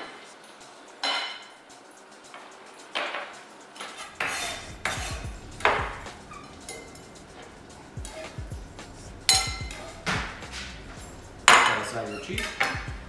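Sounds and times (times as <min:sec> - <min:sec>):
kitchenware clinks and knocks: 0:01.0 - 0:01.5, 0:11.5 - 0:12.9.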